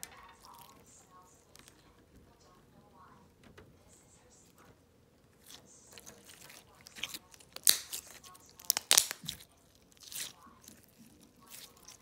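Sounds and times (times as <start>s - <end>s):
slime crackling and popping: 5.4s - 12.0s.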